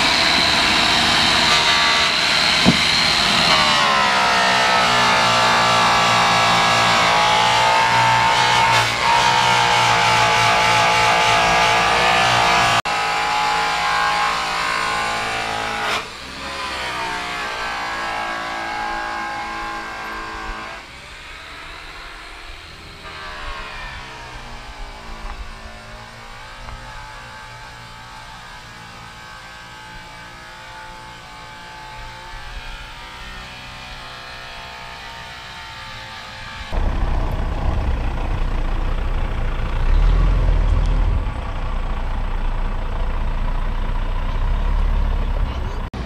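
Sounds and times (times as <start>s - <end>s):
truck engine running: 0.0s - 12.8s, 35.8s - 46.0s
deep engine rumble: 36.5s - 46.0s.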